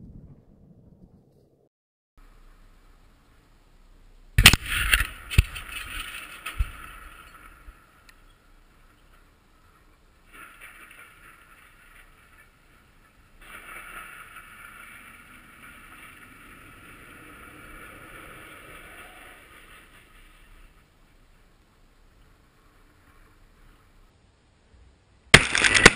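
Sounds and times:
distant muffled rumble: 0:00.0 - 0:01.6.

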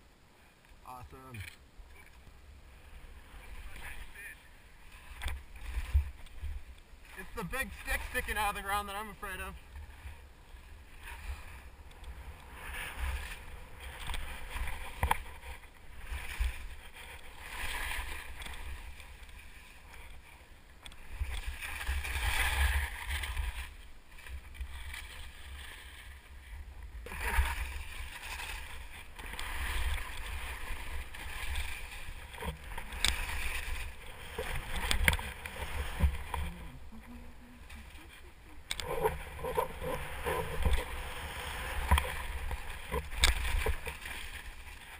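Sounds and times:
skis swishing through powder: 0:27.1 - 0:36.7.

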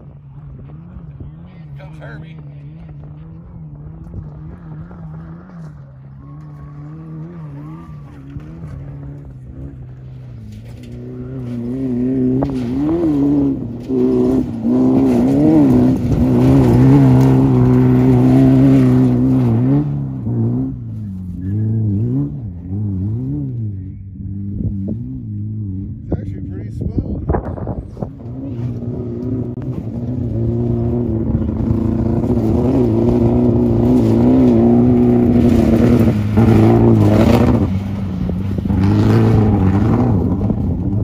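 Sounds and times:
race car engine revving past: 0:00.3 - 0:26.1, 0:27.5 - 0:41.0.

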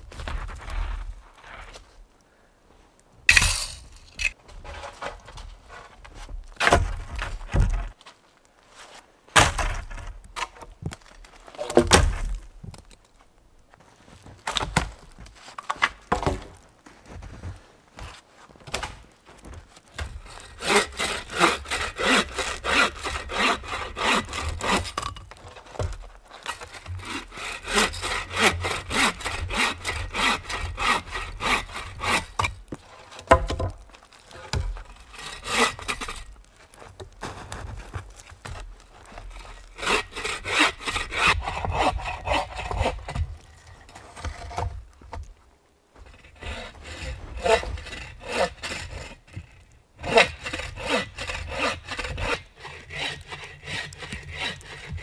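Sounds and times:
bow saw cutting branch: 0:20.3 - 0:25.1, 0:26.4 - 0:33.1, 0:39.4 - 0:43.2, 0:46.2 - 0:55.0
knocks and crunches: 0:36.0 - 0:39.8.

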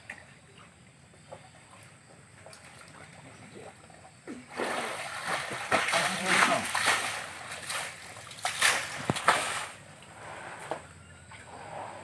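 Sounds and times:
water trickles and drips: 0:00.0 - 0:10.2
people splashing in water: 0:02.4 - 0:09.8.

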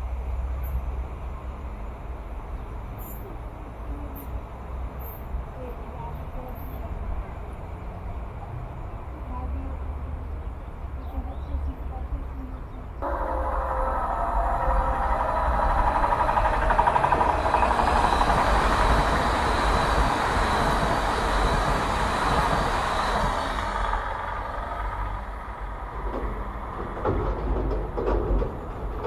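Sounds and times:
thin steady whine: 0:13.0 - 0:25.6
electric train passing: 0:13.0 - 0:29.0.

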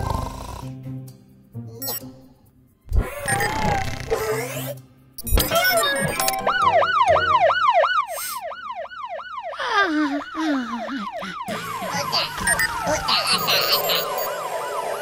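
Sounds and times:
cartoon siren yelping: 0:05.6 - 0:15.0.

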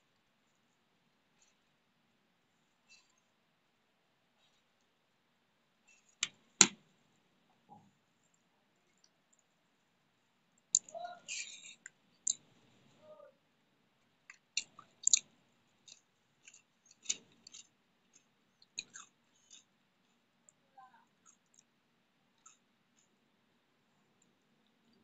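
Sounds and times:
person chewing with wet smacks: 0:14.3 - 0:20.2, 0:21.2 - 0:21.7, 0:22.4 - 0:23.1.

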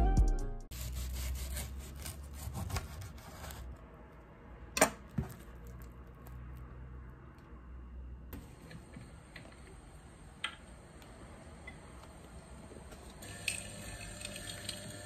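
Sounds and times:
knife sawing through toasted bread: 0:00.8 - 0:03.7.

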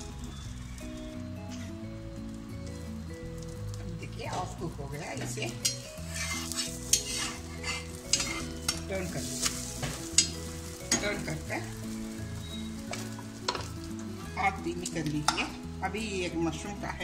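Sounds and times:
omelette sizzling in oil: 0:00.0 - 0:15.9
spatula scraping a pan: 0:05.6 - 0:11.7.

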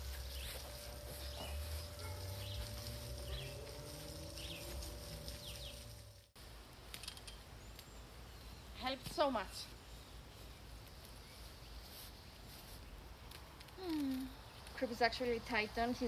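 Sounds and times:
high bird chirps: 0:00.0 - 0:06.1
garden hose spraying: 0:00.0 - 0:16.0.

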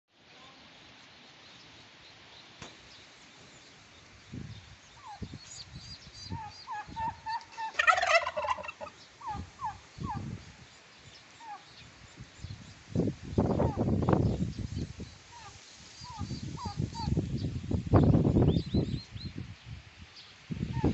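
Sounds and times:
turkey gobbling: 0:06.3 - 0:10.3, 0:11.4 - 0:11.7, 0:15.3 - 0:17.1.

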